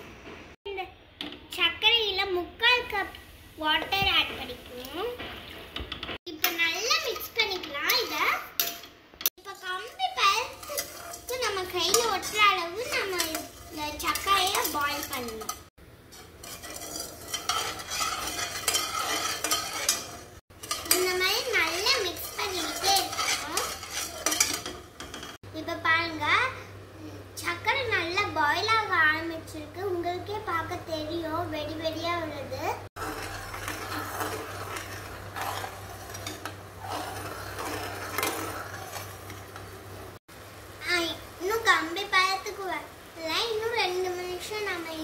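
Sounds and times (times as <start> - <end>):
metal spoon scraping a pan: 6.3 - 25.4, 32.8 - 40.2.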